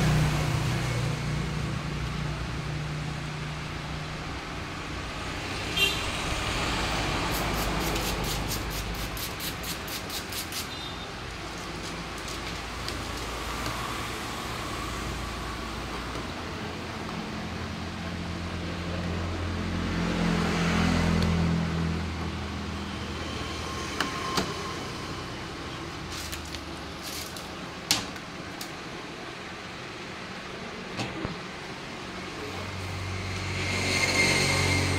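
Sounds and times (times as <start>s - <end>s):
vehicle engine passing: 0.0s - 9.4s, 17.4s - 26.4s, 31.9s - 34.9s.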